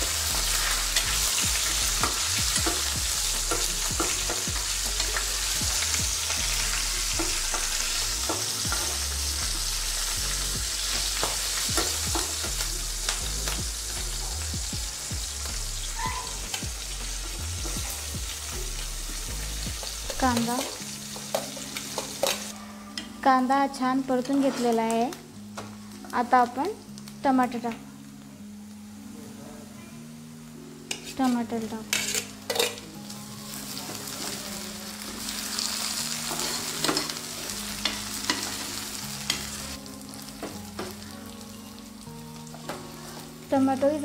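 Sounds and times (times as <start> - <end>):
hot oil sizzling in a pan: 0.0 - 29.0, 30.1 - 44.0
steel ladle scraping a pan: 24.1 - 24.8, 30.9 - 32.8, 36.2 - 39.5.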